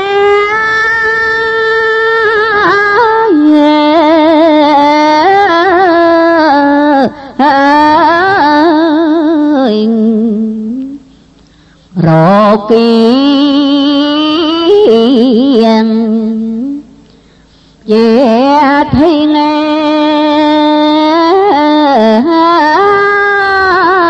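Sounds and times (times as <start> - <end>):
person breathing: 11.4 - 12.0, 17.1 - 17.8.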